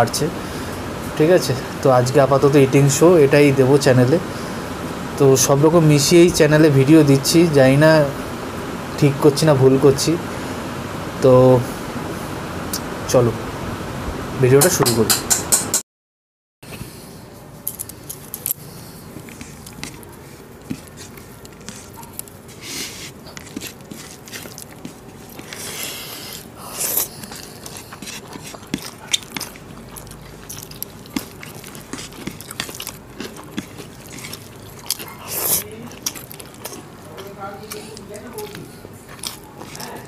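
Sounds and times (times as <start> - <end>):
people chewing and biting food: 17.7 - 40.0.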